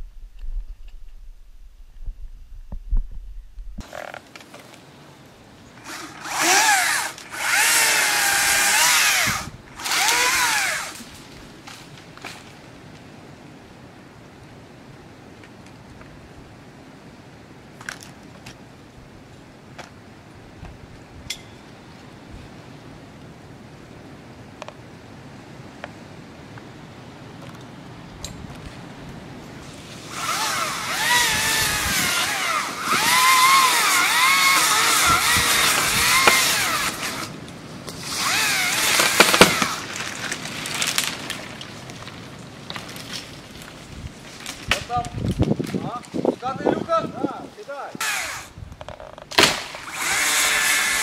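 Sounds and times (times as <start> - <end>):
chainsaw revving while cutting: 5.8 - 11.0, 30.1 - 37.3, 38.0 - 39.8, 48.0 - 48.5, 49.8 - 51.0.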